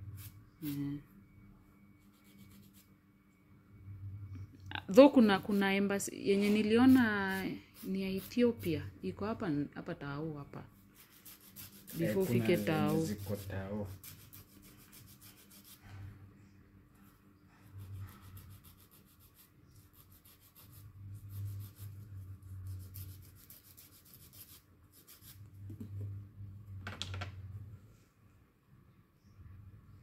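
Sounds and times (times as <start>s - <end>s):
nail file rasping on toenails: 11.0s - 15.8s, 17.6s - 25.4s.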